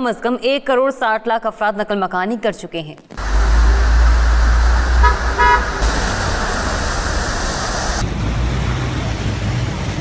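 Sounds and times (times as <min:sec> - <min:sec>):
car engine rumble: 0:03.2 - 0:10.0
cars splashing through floodwater: 0:03.2 - 0:10.0
heavy rain pouring: 0:03.2 - 0:10.0.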